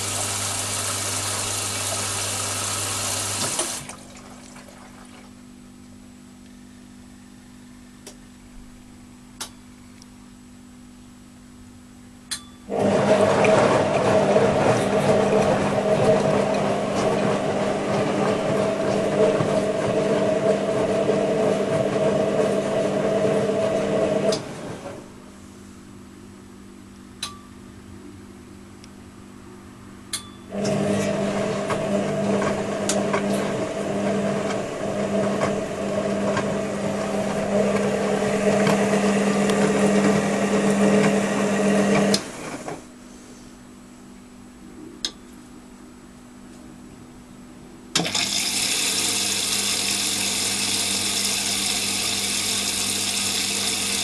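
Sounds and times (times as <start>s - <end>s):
washing machine drum tumbling: 12.8s - 22.6s.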